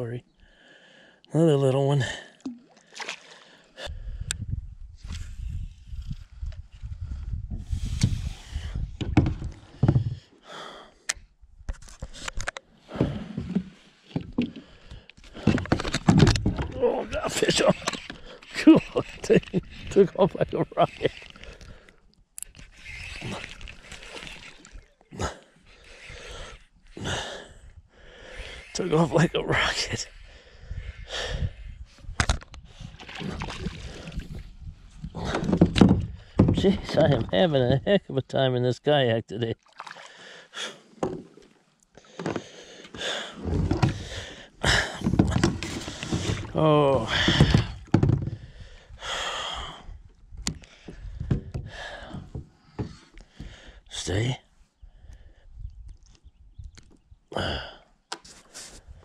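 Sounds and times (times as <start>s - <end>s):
water sloshing against a kayak: 2.1s - 4.0s, 11.8s - 37.8s, 39.6s - 49.1s, 49.9s - 53.8s
wind rumble on microphone: 3.8s - 10.2s, 30.1s - 37.9s, 54.9s - 57.2s.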